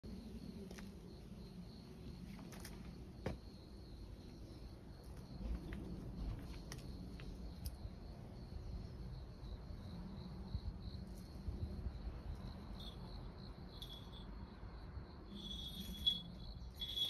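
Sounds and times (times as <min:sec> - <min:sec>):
insect trilling: 0:15.3 - 0:17.0.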